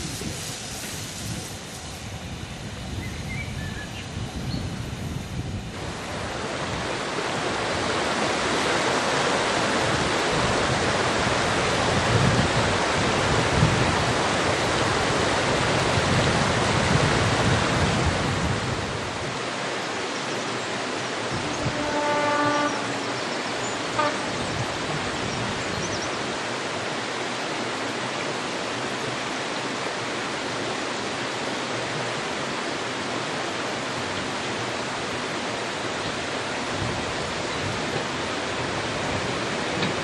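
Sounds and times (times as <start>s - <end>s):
river rushing over rocks: 5.5s - 40.0s.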